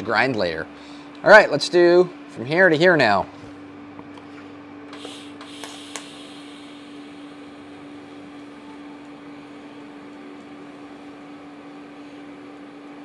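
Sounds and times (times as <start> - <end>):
welding machine hum: 4.0 - 13.0
welding arc hissing: 4.9 - 9.4.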